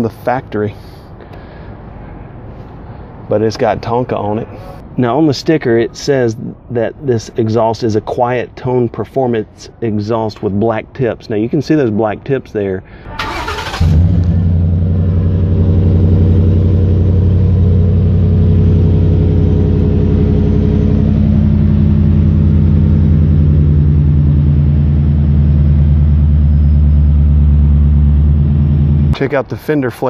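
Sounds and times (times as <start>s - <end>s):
truck engine idling: 13.1s - 29.4s.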